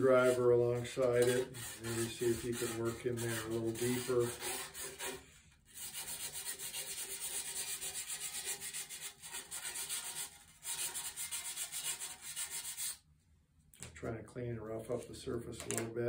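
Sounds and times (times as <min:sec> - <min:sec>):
sandpaper rasping inside a tube: 0:00.0 - 0:13.0.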